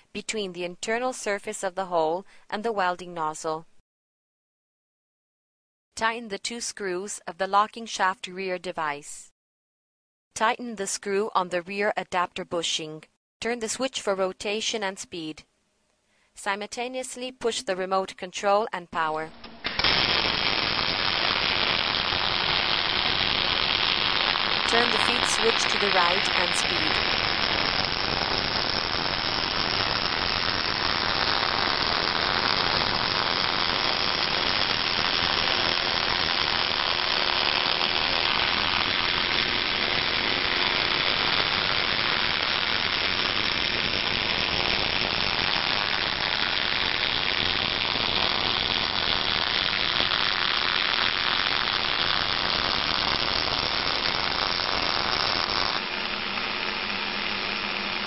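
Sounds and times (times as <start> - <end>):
welding arc hissing: 19.6 - 58.0.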